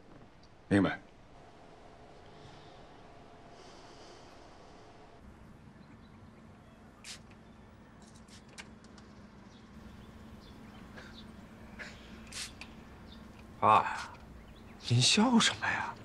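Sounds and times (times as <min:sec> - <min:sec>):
low steady hum: 0:09.2 - 0:16.0.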